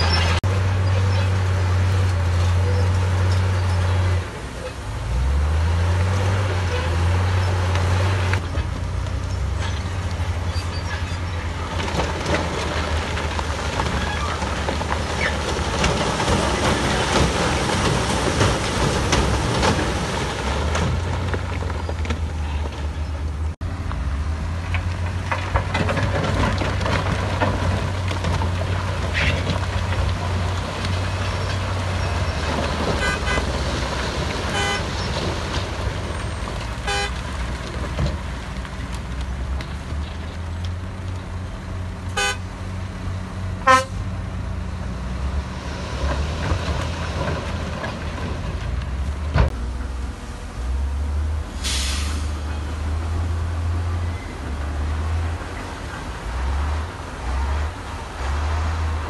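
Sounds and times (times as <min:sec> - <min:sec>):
short horn toots: 0:36.9 - 0:37.2, 0:42.2 - 0:42.4, 0:43.6 - 0:44.0.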